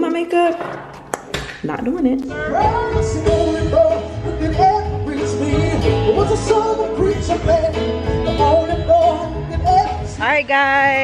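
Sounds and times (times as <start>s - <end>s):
instrumental chords: 1.7s - 10.4s
person singing: 2.3s - 11.0s.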